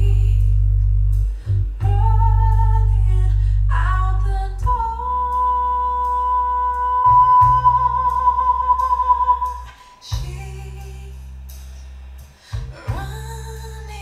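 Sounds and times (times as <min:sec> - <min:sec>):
deep bass: 0:00.0 - 0:14.0
music over speakers: 0:06.6 - 0:14.0
long held high note: 0:07.0 - 0:10.0.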